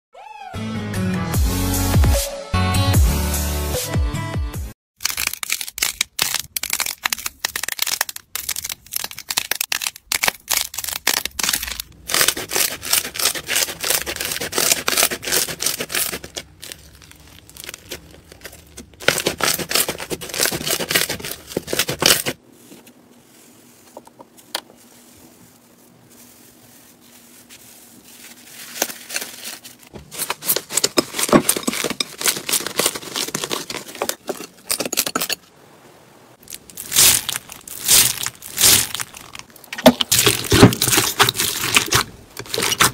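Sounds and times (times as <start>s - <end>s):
slime crackling and popping: 5.0s - 22.4s, 36.4s - 42.9s.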